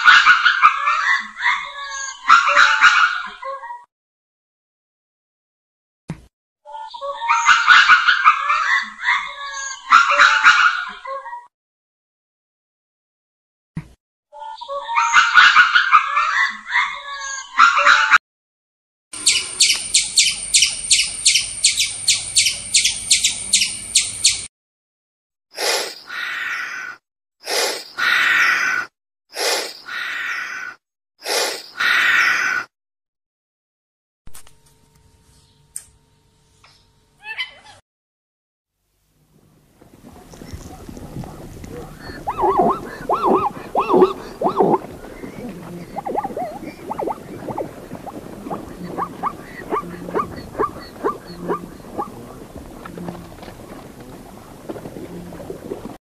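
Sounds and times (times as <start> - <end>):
breathy animal call: 40.0 - 56.0.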